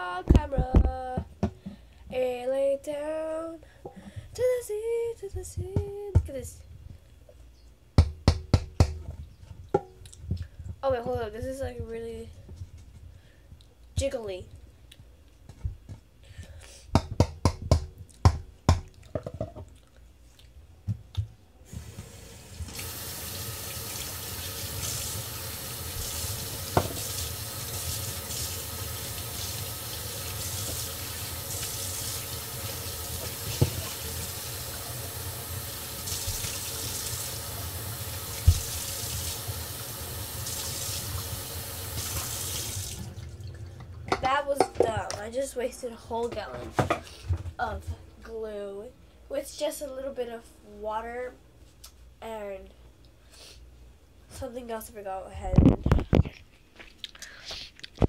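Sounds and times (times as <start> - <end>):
tap water running into sink: 21.8 - 43.6.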